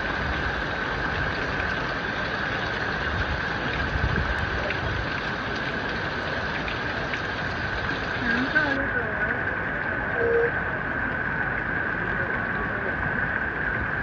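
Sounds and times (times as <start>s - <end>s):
floodwater rushing: 0.0s - 14.0s
rain: 0.0s - 14.0s
constant high tone: 10.1s - 10.6s.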